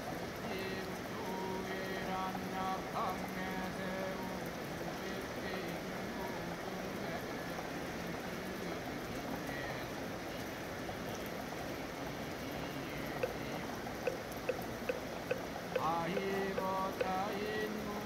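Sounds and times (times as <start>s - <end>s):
steady rain: 0.0s - 18.0s
light evenly spaced knocks: 13.1s - 17.5s.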